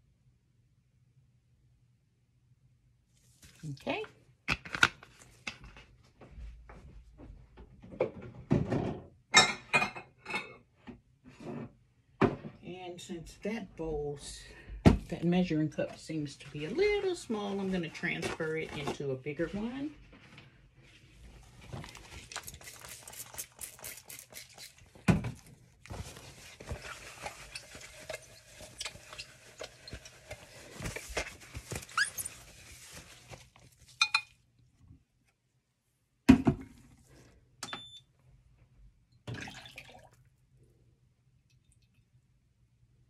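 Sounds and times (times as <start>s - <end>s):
oil pouring: 39.3s - 40.3s.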